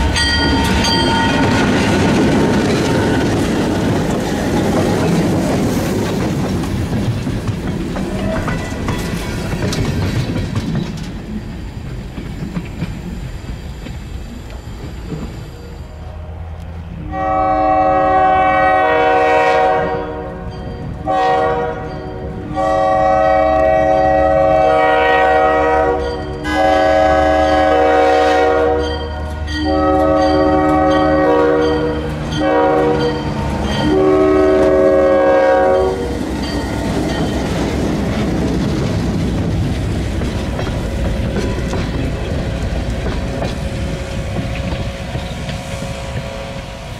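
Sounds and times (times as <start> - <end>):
train wheel clatter: 0.0 - 15.7, 26.0 - 46.9
locomotive engine rumble: 0.0 - 19.6, 22.0 - 46.9
locomotive air horn blasts: 15.9 - 36.2.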